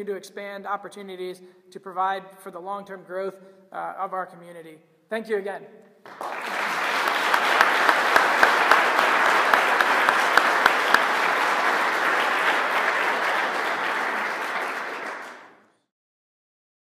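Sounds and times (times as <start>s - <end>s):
loud nearby claps: 6.0s - 15.7s
audience applauding: 6.1s - 15.6s.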